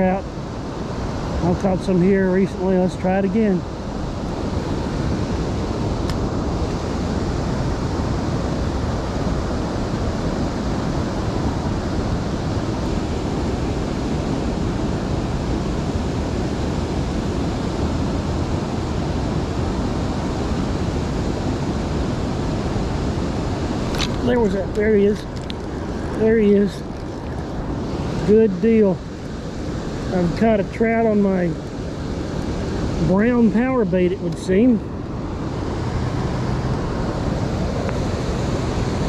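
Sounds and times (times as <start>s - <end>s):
river water rushing: 0.0s - 39.0s
wind on microphone: 0.0s - 39.0s.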